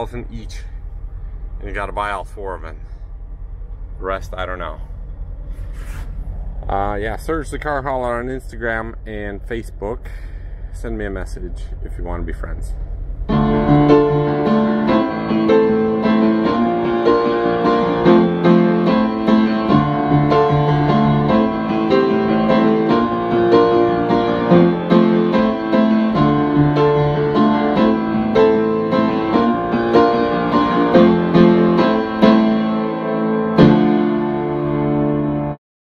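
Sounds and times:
piano background music: 13.3s - 35.6s.

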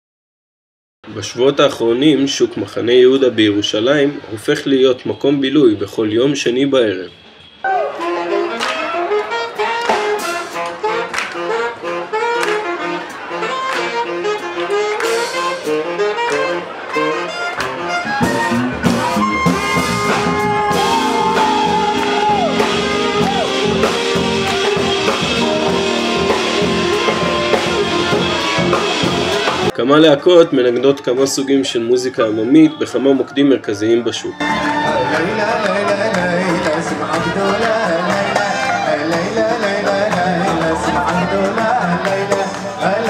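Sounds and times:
street band with saxophones and brass: 6.7s - 29.8s, 34.3s - 43.0s
bass line: 7.7s - 29.8s.

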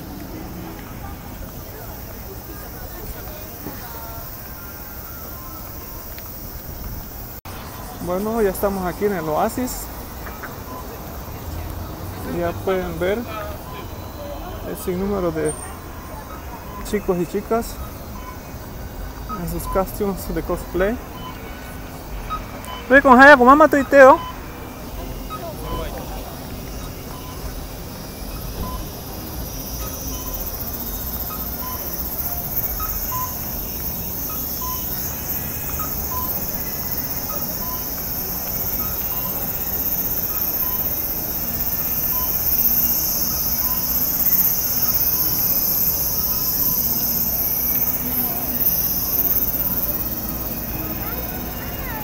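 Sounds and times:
cicadas buzzing: 0.0s - 52.0s
street bustle: 0.0s - 52.0s
crossing signal two-note chirp: 19.3s - 52.0s.

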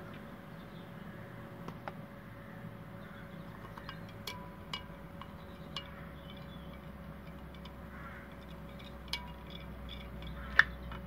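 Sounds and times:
glass rod clinking on beaker: 3.7s - 11.0s.

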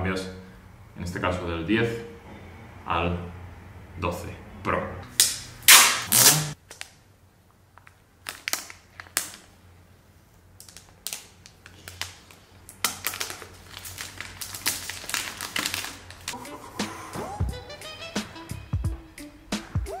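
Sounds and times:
paper seal tearing: 5.2s - 6.6s
packaging crinkling: 7.8s - 9.6s, 10.5s - 16.4s.

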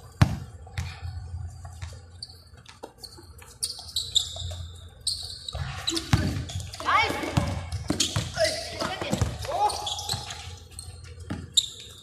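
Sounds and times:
shoes squeaking on court: 0.0s - 12.0s
basketball dribbling thuds: 0.1s - 2.0s, 5.5s - 10.4s, 11.1s - 11.6s.

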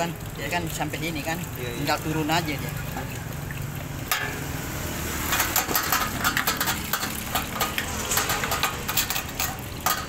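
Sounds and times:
metallic knocking and clinking: 5.2s - 10.0s.

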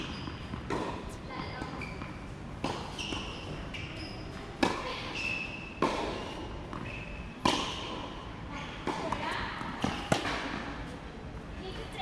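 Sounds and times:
racket hitting tennis ball: 0.0s - 1.0s, 1.6s - 3.6s, 4.6s - 5.0s, 5.8s - 10.8s.

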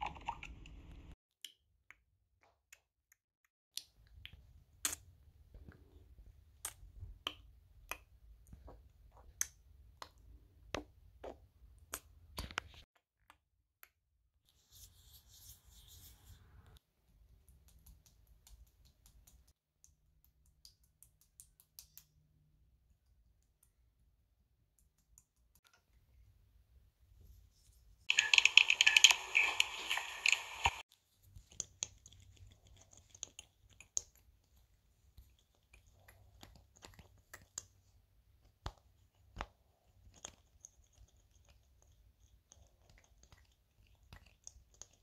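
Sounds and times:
paper pieces clicking and tapping: 28.1s - 30.5s
paper rustling: 28.1s - 30.8s.

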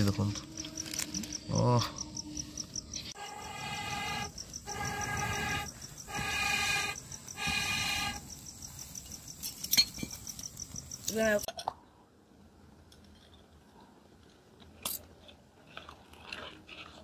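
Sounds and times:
cricket chirping: 0.0s - 11.5s.

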